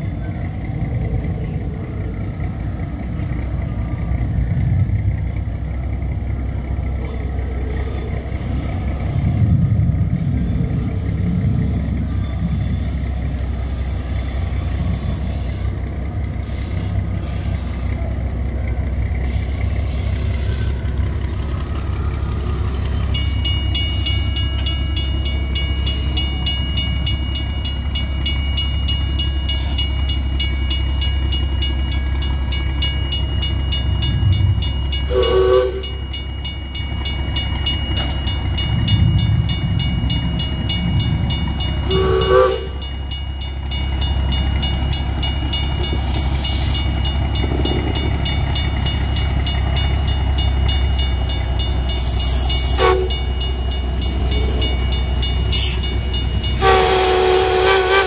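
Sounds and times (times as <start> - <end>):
locomotive rumbling: 0.0 - 58.0
steady high ringing: 22.8 - 57.3
locomotive horn toot: 35.0 - 36.0, 41.8 - 42.9, 52.6 - 53.3, 56.5 - 58.0.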